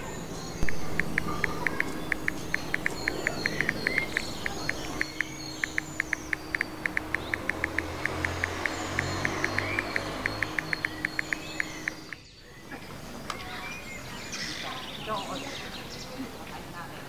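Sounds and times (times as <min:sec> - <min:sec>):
faint birdsong chirps: 0:00.0 - 0:17.0.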